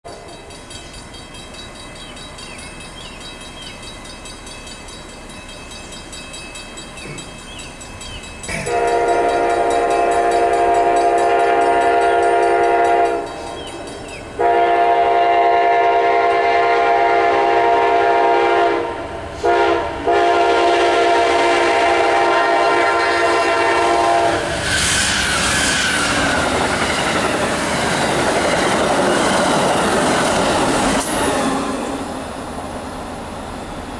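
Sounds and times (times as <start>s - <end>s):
train passing with wheel noise: 0.0s - 33.9s
train horn blasts: 8.5s - 13.6s, 14.4s - 24.5s.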